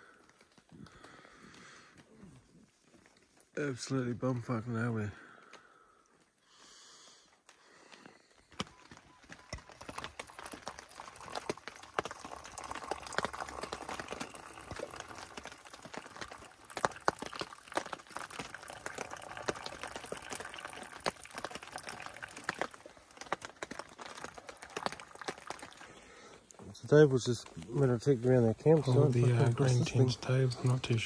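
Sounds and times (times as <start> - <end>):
drops splashing: 9.8 - 26.3
water pouring into a mug: 10.4 - 26.0.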